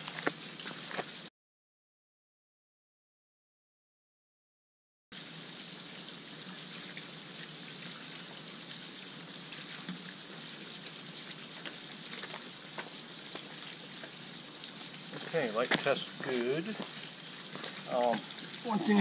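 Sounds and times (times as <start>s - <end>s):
water splashing into pool: 5.2s - 19.0s.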